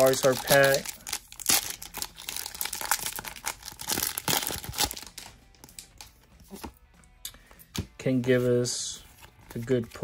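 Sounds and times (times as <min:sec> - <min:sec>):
foil wrapper crinkling and tearing: 0:00.0 - 0:05.9.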